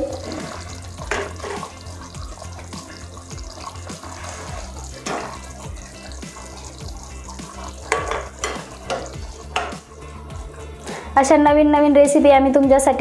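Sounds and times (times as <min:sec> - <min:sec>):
ladle stirring thick curry: 0:00.3 - 0:11.0.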